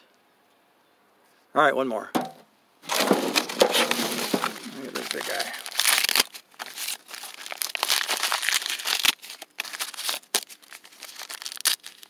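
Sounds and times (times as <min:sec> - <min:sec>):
corn husks tearing and rustling: 0:02.8 - 0:12.0.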